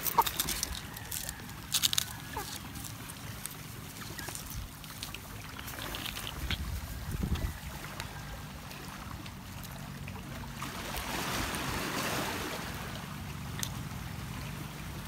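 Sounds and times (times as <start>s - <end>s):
waves washing over pebbles: 0.0s - 15.0s.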